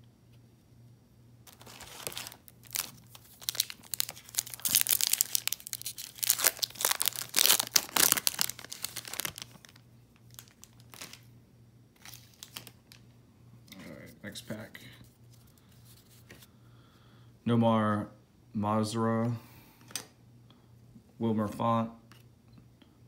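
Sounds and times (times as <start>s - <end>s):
foil wrapper tearing and crumpling: 1.5s - 11.2s, 12.0s - 12.8s.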